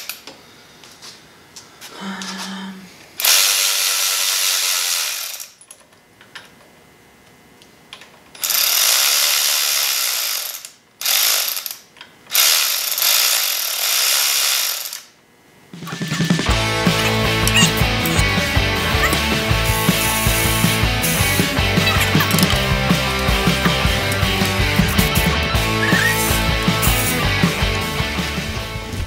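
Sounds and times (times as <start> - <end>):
ratchet wrench clicking: 8.4 - 15.1.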